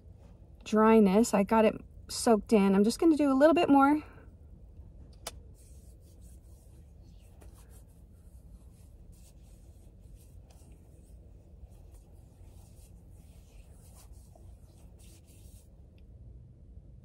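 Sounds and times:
low steady hum: 0.0 - 17.0
hands rubbing together: 5.3 - 15.7.

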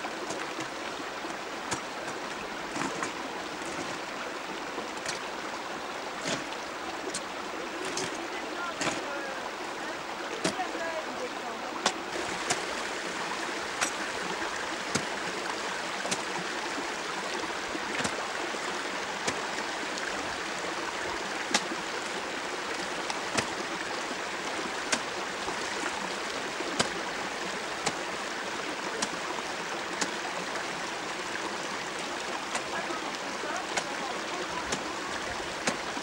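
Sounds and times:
water rushing in stream: 0.0 - 36.0.

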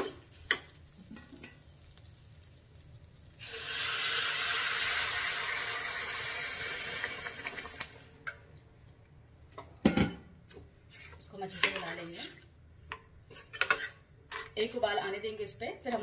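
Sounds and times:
water hissing in hot pan: 0.0 - 8.2.

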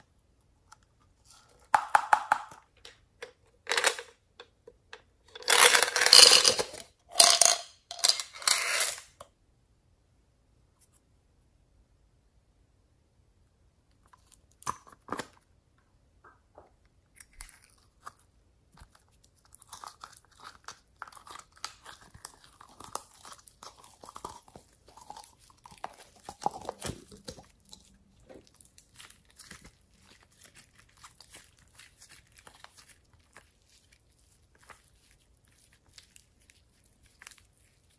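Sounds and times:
slime squishing in hands: 17.1 - 37.9.

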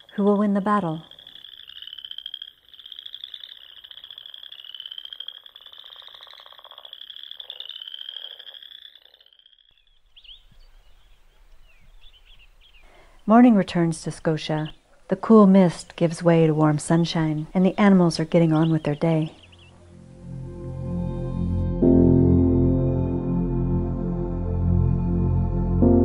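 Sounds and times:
frogs calling in trills: 0.0 - 13.3, 14.2 - 15.0, 15.8 - 19.9
faint chirps: 0.0 - 13.4, 15.8 - 20.0.

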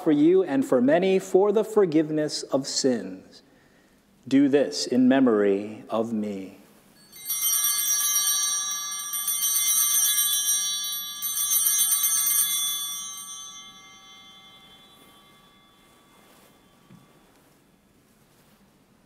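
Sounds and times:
altar bells jingling: 7.0 - 17.8.

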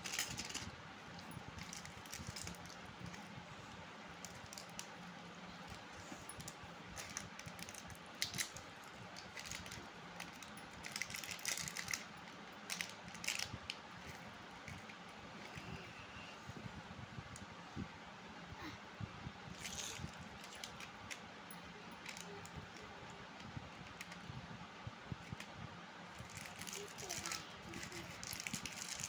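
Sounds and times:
plastic wrappers crinkling: 0.0 - 3.2, 6.4 - 13.5, 26.2 - 29.0
low steady hiss: 0.0 - 29.0.

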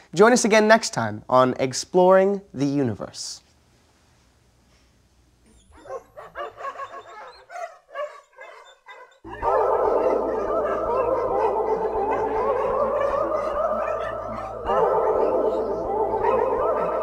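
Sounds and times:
dogs barking and yelping: 5.5 - 17.0
dogs howling in chorus: 5.8 - 17.0
steady low hum: 9.2 - 17.0.

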